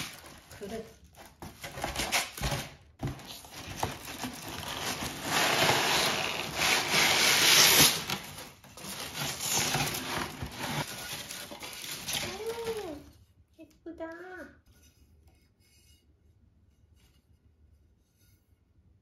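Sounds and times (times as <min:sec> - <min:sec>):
paper packing wrap crinkling: 0:00.0 - 0:13.2.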